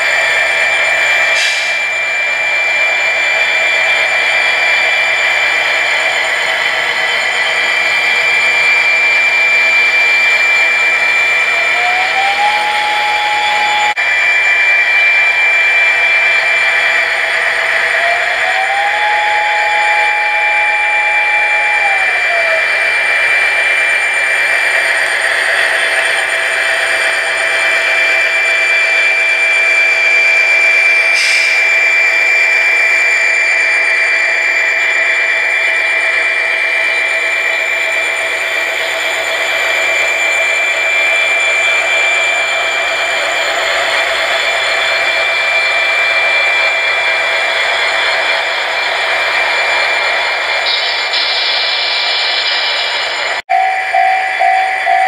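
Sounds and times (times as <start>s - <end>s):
diesel locomotive sound from small speakers: 0.0s - 55.0s
steady high whine: 0.0s - 55.0s
rising and falling tone: 0.1s - 31.1s.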